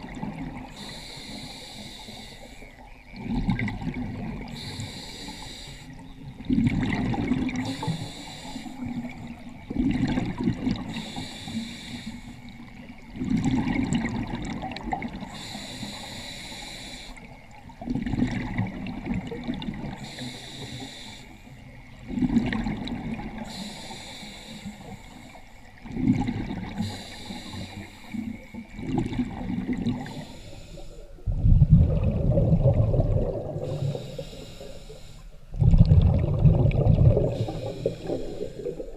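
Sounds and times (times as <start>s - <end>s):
exhaled bubbles gurgling: 0.0s - 21.0s, 21.6s - 38.9s
regulator inhale hiss: 0.7s - 2.8s, 4.5s - 6.0s, 7.6s - 9.1s, 10.8s - 12.7s, 15.2s - 17.4s, 20.0s - 21.6s, 23.4s - 25.8s, 26.7s - 28.7s, 30.0s - 31.3s, 33.6s - 35.6s, 37.2s - 38.9s.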